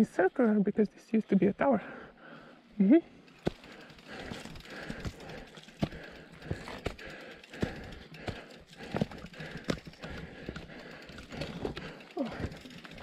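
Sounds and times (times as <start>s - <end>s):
bike knocking and rattling: 3.2s - 13.0s
tyres rolling over stones: 3.3s - 13.0s.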